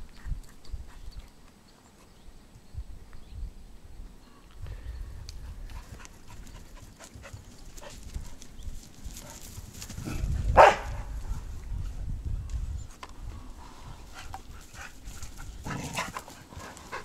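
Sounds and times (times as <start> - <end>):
dog barking: 10.6 - 11.1.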